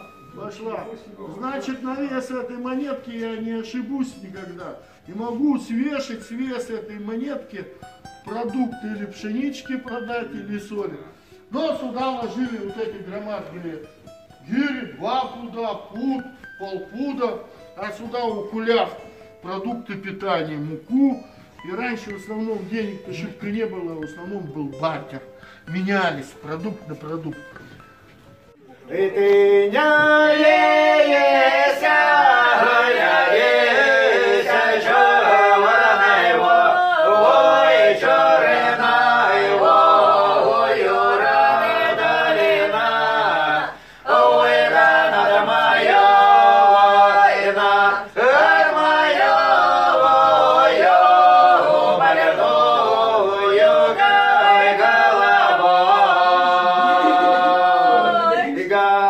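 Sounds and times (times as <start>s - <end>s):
choir singing: 28.9s - 59.0s.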